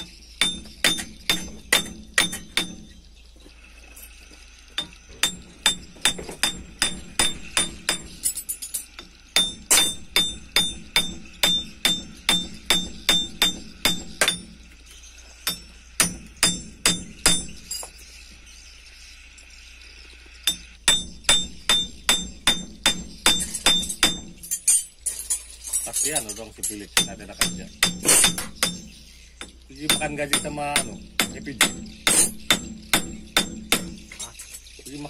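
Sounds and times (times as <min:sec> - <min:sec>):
hammer blows ringing on steel hub: 0:00.0 - 0:03.0, 0:04.8 - 0:14.7, 0:15.4 - 0:17.9, 0:20.4 - 0:24.9, 0:26.0 - 0:34.1.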